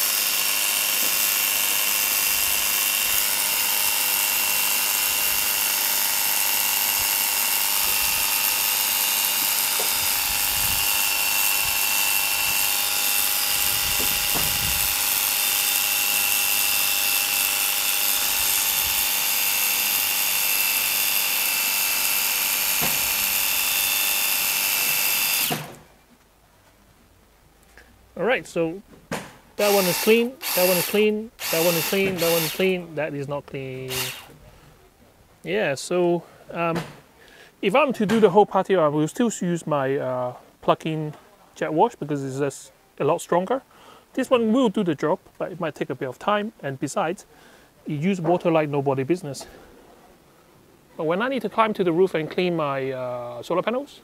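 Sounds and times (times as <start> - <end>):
electric pump whine: 0.0 - 25.8, 29.6 - 33.0, 33.8 - 34.4.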